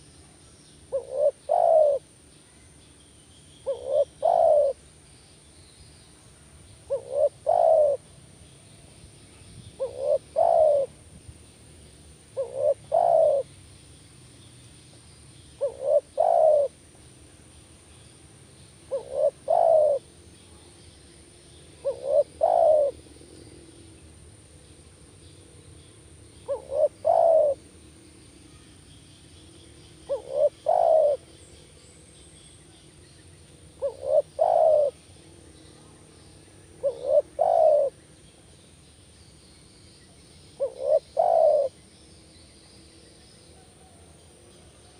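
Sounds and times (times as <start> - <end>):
dove cooing: 0.9 - 2.2, 3.6 - 4.8, 6.8 - 8.1, 9.8 - 11.0, 12.3 - 13.5, 15.6 - 16.8, 18.8 - 20.1, 21.8 - 23.0, 26.4 - 27.7, 30.0 - 31.4, 33.7 - 35.1, 36.8 - 38.0, 40.6 - 41.8.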